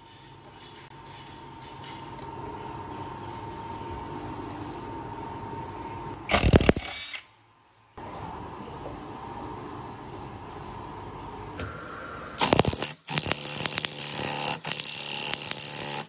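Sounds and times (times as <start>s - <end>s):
cordless power drill burst: 6.3s - 7.3s.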